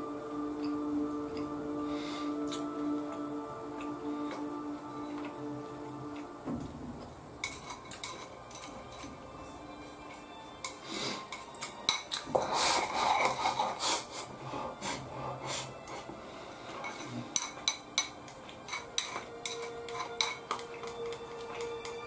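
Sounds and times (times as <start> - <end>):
chopsticks clicking against bowl: 7.4 - 9.1, 10.1 - 13.6, 16.8 - 22.0.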